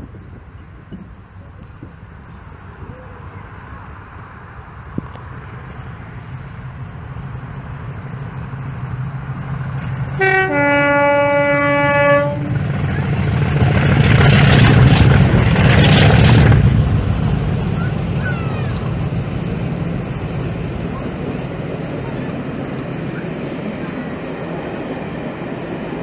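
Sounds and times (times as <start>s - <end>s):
diesel locomotive engine passing: 0.0s - 26.0s
two-tone train horn: 10.2s - 12.6s.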